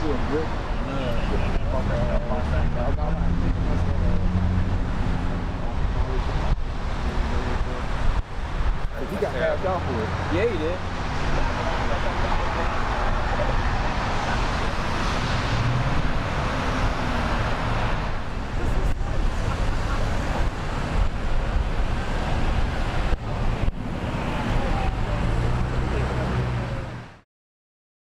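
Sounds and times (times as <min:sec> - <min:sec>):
road and vehicle noise: 0:00.0 - 0:27.2.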